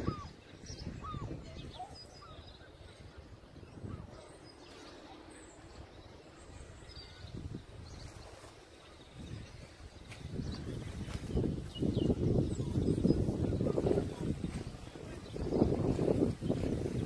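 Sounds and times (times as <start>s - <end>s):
wind rumble on microphone: 0.0s - 17.0s.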